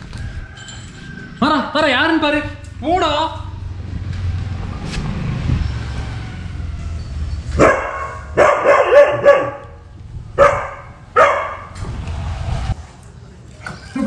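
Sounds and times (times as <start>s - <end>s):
dog barking: 7.6s - 9.8s, 10.4s - 11.7s
low rumble: 10.0s - 13.0s.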